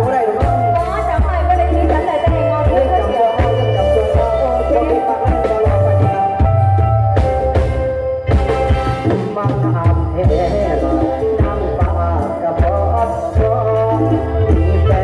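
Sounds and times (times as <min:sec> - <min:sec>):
person singing: 0:00.0 - 0:06.7, 0:09.0 - 0:15.0
held keyboard notes: 0:00.0 - 0:09.2
drum kit and bass beat: 0:00.0 - 0:15.0.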